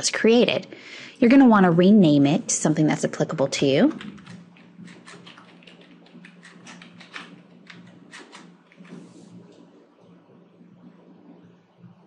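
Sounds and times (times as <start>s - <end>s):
low steady hum: 0.0s - 12.0s
keyboard typing: 3.8s - 9.6s.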